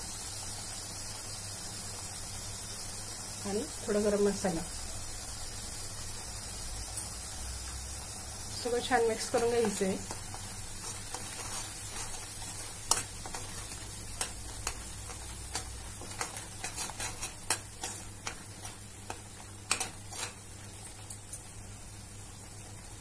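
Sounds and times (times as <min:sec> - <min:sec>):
frying sizzle: 0:00.0 - 0:23.0
spoon scraping a pan: 0:08.8 - 0:21.1.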